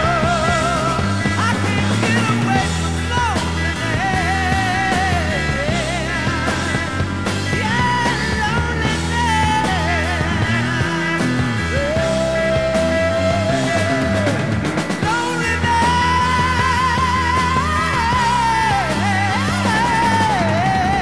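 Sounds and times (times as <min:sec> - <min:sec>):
rock band playing: 0:00.0 - 0:21.0
wavering lead guitar notes: 0:00.0 - 0:21.0.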